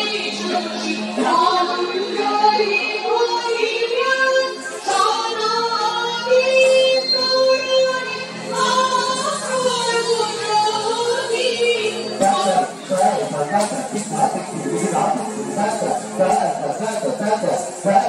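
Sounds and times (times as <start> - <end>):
woman singing: 0.0 - 13.2.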